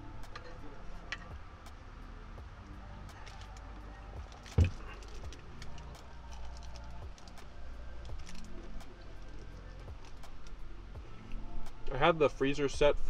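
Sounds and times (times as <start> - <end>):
low steady hum: 0.0 - 13.0
heavy thump: 4.6 - 4.9.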